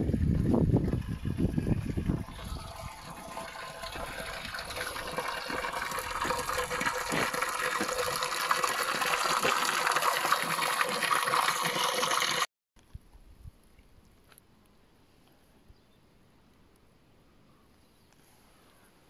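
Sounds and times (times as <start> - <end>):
water rushing: 0.9 - 12.5.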